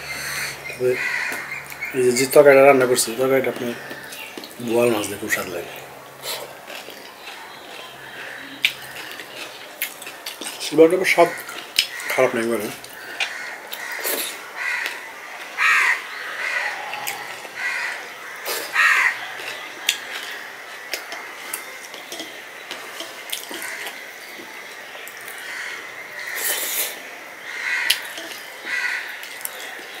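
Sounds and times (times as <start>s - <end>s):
chewing: 5.7s - 15.6s, 16.7s - 17.6s, 18.3s - 25.7s
short harsh calls: 15.6s - 19.4s.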